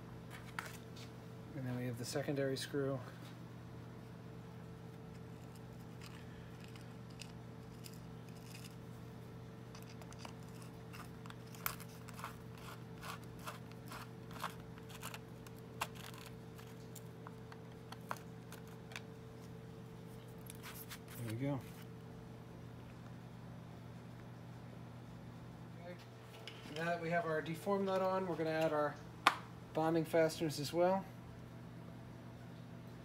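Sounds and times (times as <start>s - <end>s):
steady low hum: 0.0s - 33.0s
screwdriver metallic clicks and scrapes: 5.2s - 8.8s, 9.7s - 16.8s.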